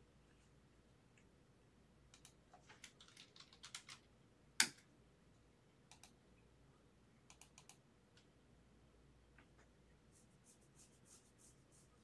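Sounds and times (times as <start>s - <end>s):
typing on computer keyboard: 2.1s - 4.8s, 7.3s - 7.8s.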